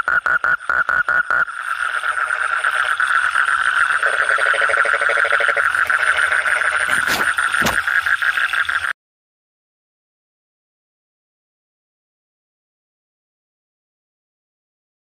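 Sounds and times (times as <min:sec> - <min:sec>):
frog calls: 0:00.0 - 0:08.9
toad trilling: 0:00.0 - 0:08.9.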